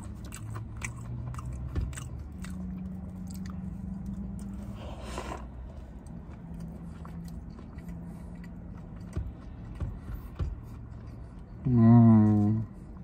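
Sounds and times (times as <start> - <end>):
person chewing food: 0.0 - 11.7.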